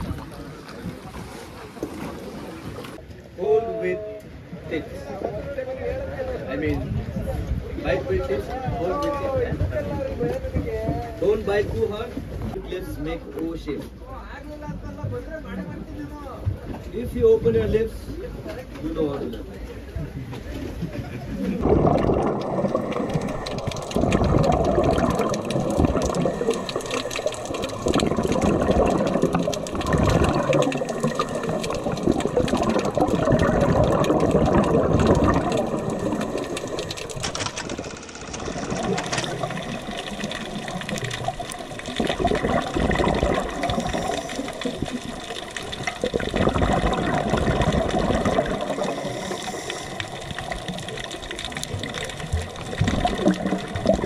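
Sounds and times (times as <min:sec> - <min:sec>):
bubbling exhaust: 0:21.1 - 0:54.0
diver breathing through regulator: 0:40.9 - 0:52.1.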